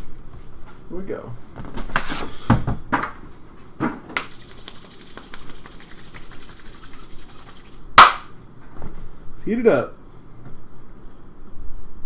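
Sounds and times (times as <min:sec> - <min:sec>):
steady high fluttering hiss: 0:04.2 - 0:08.0.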